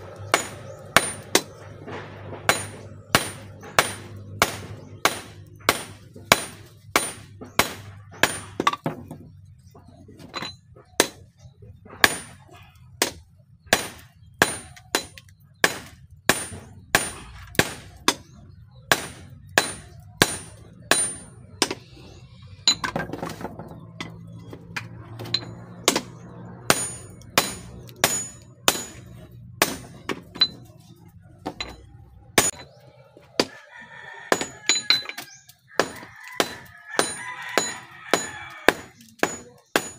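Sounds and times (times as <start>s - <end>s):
hammer blows on anvil: 0.0s - 8.6s.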